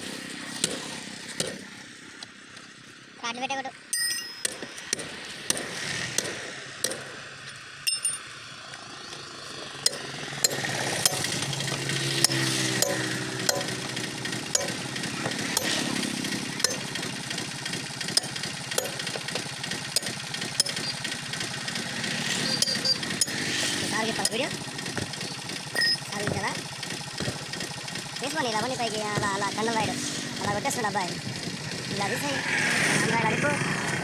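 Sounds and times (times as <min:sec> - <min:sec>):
passing vehicle engine: 0:00.0 - 0:03.2, 0:04.8 - 0:34.0
hammer on metal: 0:12.2 - 0:13.8, 0:14.5 - 0:15.8.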